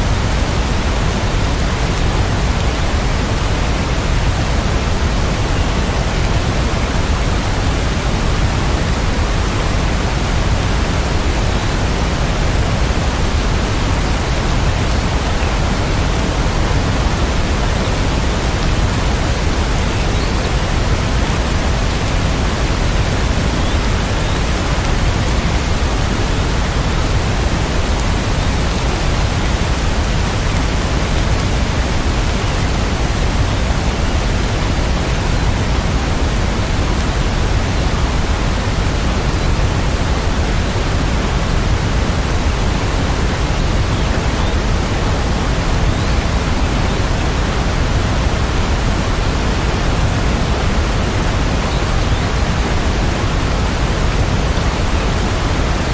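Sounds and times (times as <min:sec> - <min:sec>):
steady rain hiss: 0:00.0 - 0:55.9.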